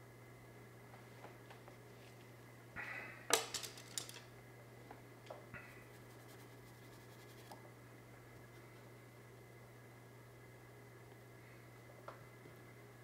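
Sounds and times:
low steady hum: 0:00.0 - 0:13.0
wooden brushes clicking together: 0:03.4 - 0:04.3.

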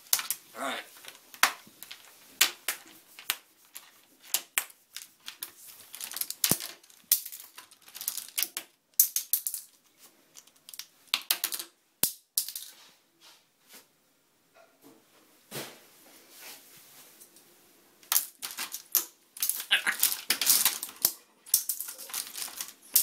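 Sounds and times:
plastic clothespins clattering: 0:00.0 - 0:11.7, 0:18.0 - 0:23.0.

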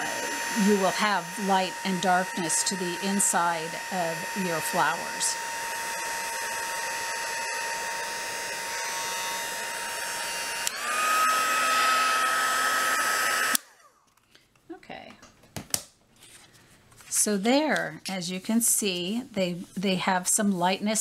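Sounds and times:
heat gun whining: 0:00.0 - 0:14.2.

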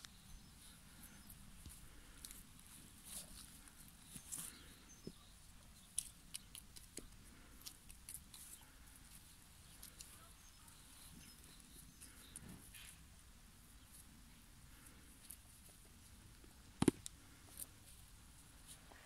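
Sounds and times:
beaks pecking at food: 0:00.0 - 0:13.0.

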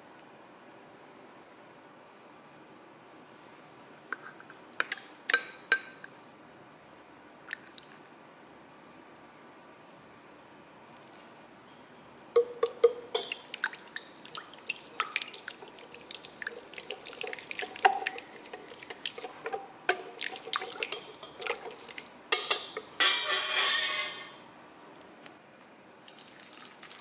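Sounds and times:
whisk clicking against bowl: 0:12.4 - 0:23.3.

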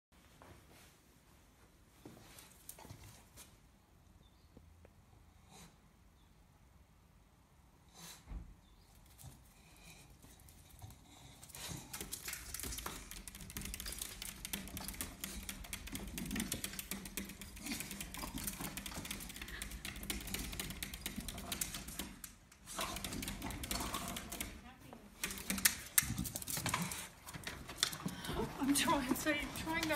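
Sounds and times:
dog claws scrabbling on glass: 0:11.7 - 0:24.5.

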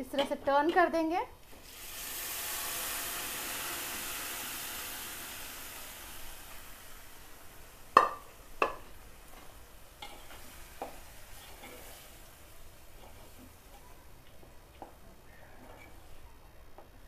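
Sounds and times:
oil sizzling in a pot: 0:01.4 - 0:16.3.

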